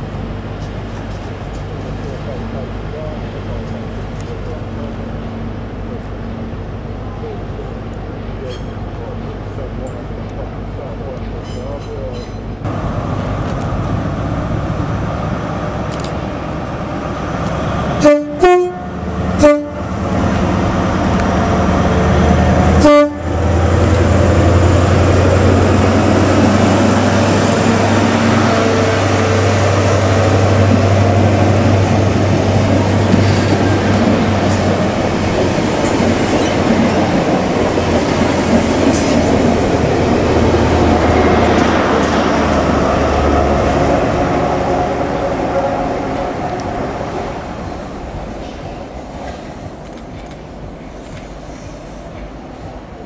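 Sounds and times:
diesel engine droning: 12.6s - 48.4s
train horn blasts: 18.0s - 19.9s, 22.8s - 23.4s.

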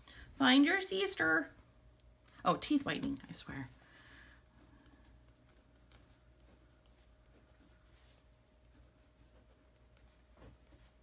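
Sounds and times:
faint steady hum: 0.0s - 11.0s
pen scratching on paper: 4.6s - 11.0s.

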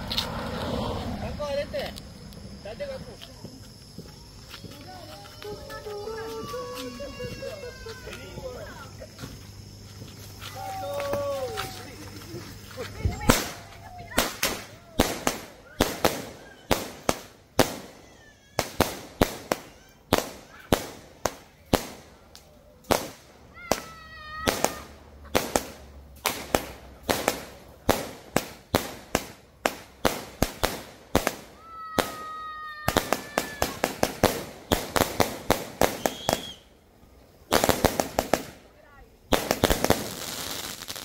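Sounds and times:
fireworks firing sharp bangs: 13.1s - 36.8s, 37.4s - 41.0s.

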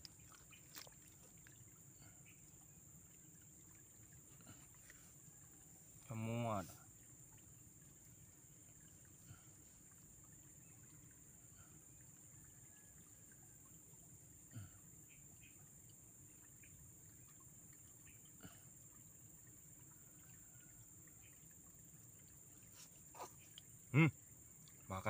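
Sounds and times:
faint ticks: 17.1s - 23.8s.

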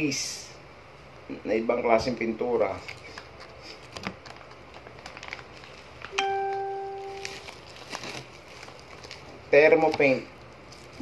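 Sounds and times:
plastic bags crinkling: 2.9s - 6.2s, 6.9s - 11.0s
bell-like ding: 6.2s - 7.3s.

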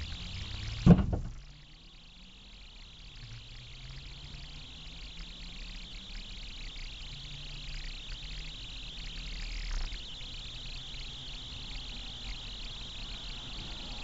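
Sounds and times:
car cabin hiss and rumble: 0.0s - 1.9s.

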